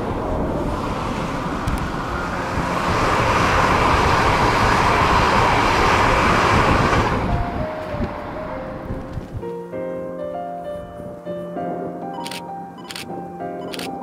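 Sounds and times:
train passing close by: 0:00.0 - 0:09.5.

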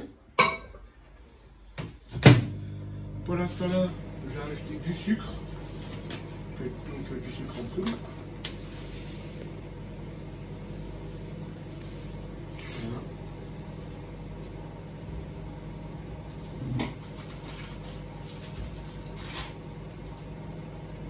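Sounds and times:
low steady hum: 0:02.2 - 0:21.0
paper bag rustling: 0:17.0 - 0:19.6.

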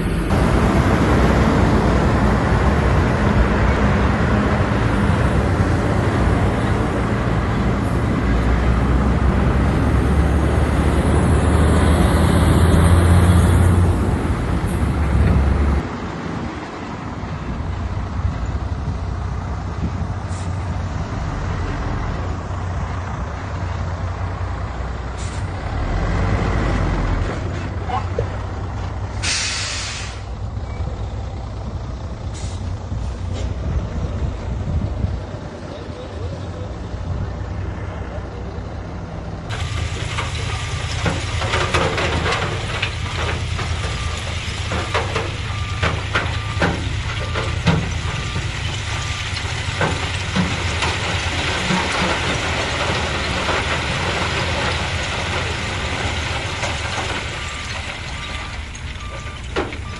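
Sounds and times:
heavy machinery diesel engine: 0:00.0 - 0:59.9
short burst of hiss: 0:29.2 - 0:30.3.

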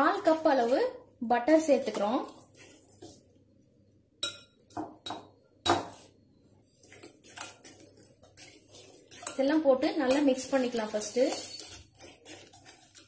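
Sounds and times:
spoon clinking against glass bowl: 0:04.2 - 0:05.2, 0:07.0 - 0:13.0.

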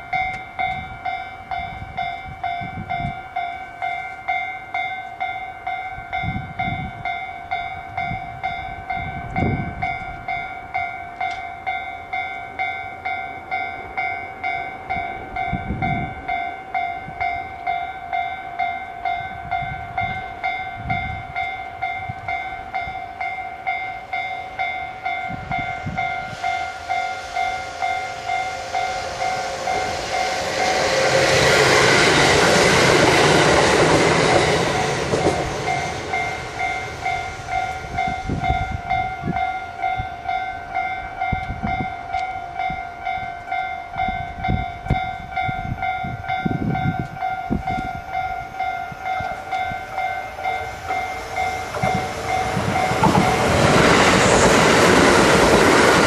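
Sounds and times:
electric train passing: 0:00.0 - 0:56.0
level-crossing alarm ringing: 0:00.0 - 0:56.0
rush of noise: 0:25.4 - 0:39.4, 0:49.3 - 0:56.0.

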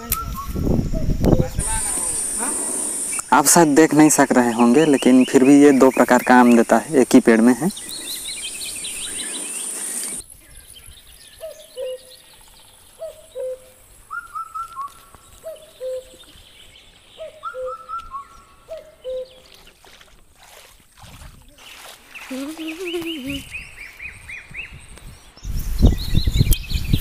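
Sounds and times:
birds calling: 0:00.0 - 0:20.7, 0:21.6 - 0:27.0
higher bird chirps: 0:00.1 - 0:19.8
high insect drone: 0:01.6 - 0:10.7.

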